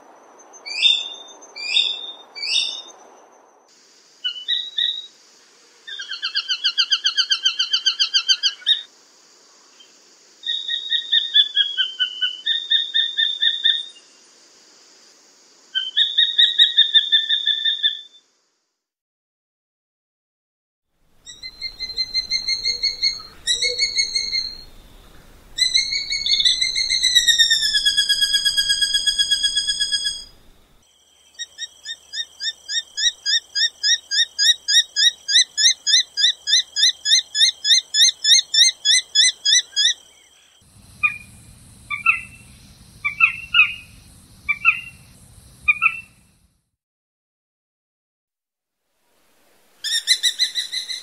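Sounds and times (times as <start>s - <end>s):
low background noise: 21.0s - 46.6s
hawk calling: 21.3s - 30.7s, 40.8s - 46.4s.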